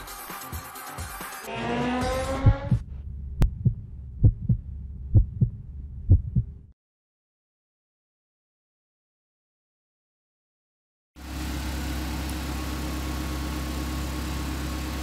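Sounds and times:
rising synthetic sweep: 1.5s - 3.9s
low hum: 1.6s - 6.7s
heartbeat-like double thump: 2.3s - 6.7s.

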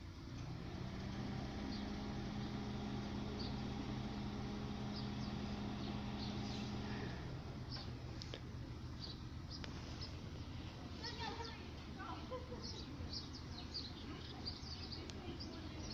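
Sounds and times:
low mechanical hum: 0.0s - 15.9s.

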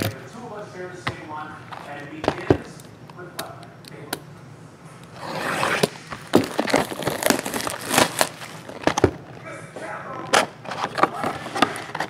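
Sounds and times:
plastic shrink-wrap tearing and crinkling: 5.2s - 9.0s.

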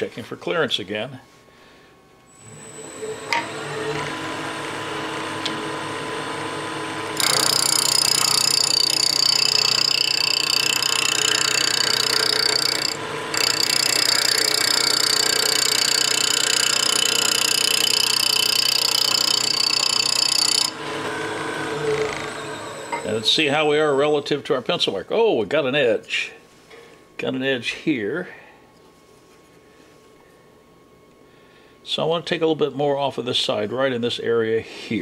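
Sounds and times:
wood lathe motor running: 2.3s - 23.9s
turning tool shaving wood: 3.4s - 23.3s.

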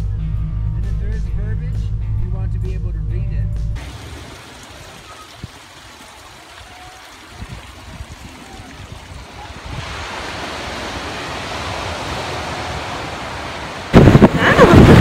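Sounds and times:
stream water running: 3.8s - 15.0s
waves breaking on shore: 3.8s - 15.0s.

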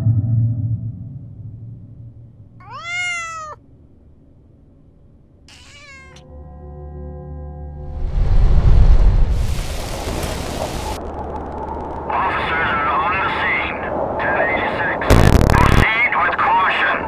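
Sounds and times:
low steady drone: 0.0s - 2.6s, 6.2s - 9.4s
cat meowing: 2.6s - 3.6s, 5.5s - 6.2s.

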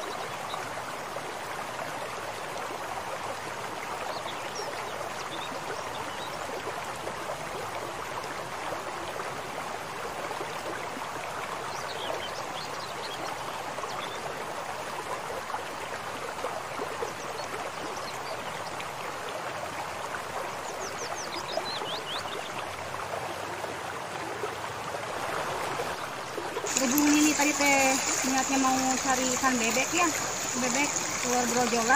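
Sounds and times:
water rushing in channel: 13.3s - 31.9s.

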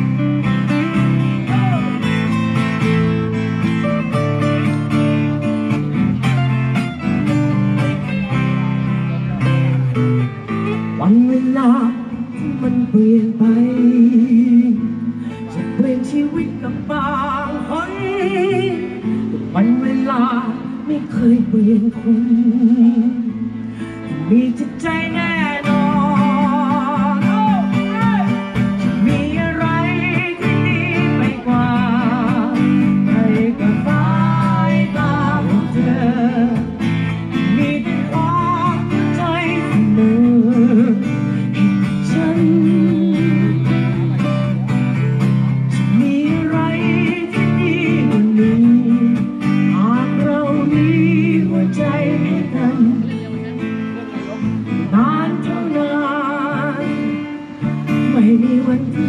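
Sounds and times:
person singing: 0.0s - 3.0s, 7.8s - 53.6s, 54.2s - 59.0s
acoustic guitar playing chords: 0.0s - 59.0s.

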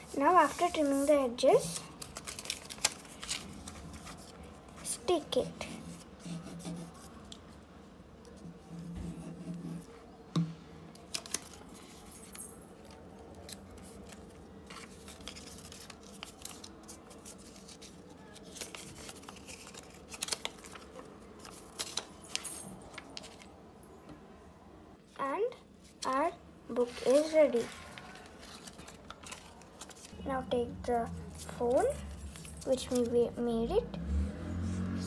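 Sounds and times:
paper rustling: 0.0s - 5.4s, 11.0s - 23.5s, 26.0s - 30.2s, 31.2s - 33.2s.

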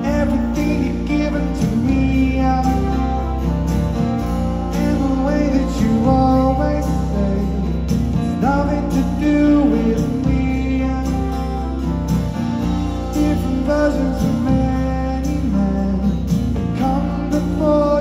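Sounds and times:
man singing: 0.0s - 12.2s, 12.8s - 18.0s
electric guitar: 0.0s - 18.0s
keyboard: 0.0s - 18.0s
strummed acoustic guitar: 0.0s - 18.0s.

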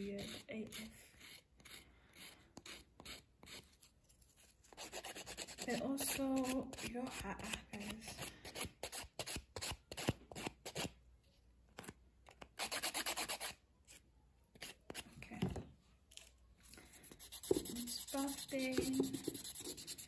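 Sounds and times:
nail file rasping: 0.0s - 3.9s, 4.7s - 10.9s, 12.3s - 13.6s, 17.0s - 20.0s.

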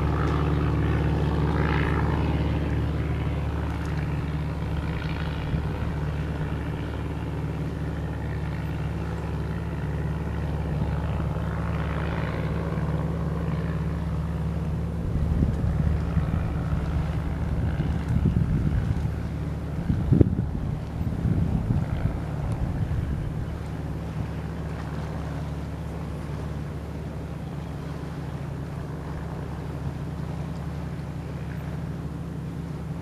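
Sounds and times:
wind buffeting microphone: 0.0s - 7.5s, 14.8s - 25.4s
low engine drone: 0.0s - 33.0s.

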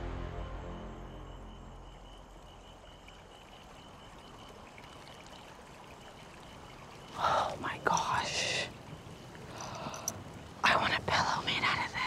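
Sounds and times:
background music: 0.0s - 2.1s
trickle of running water: 1.9s - 12.0s.

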